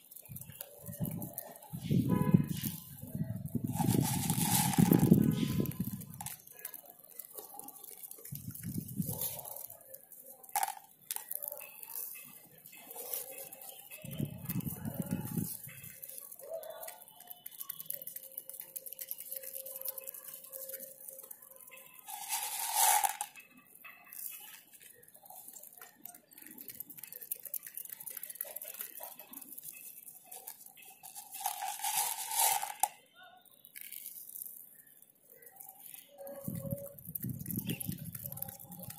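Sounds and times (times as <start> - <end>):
pigeons pecking seeds on concrete: 0.0 - 38.9.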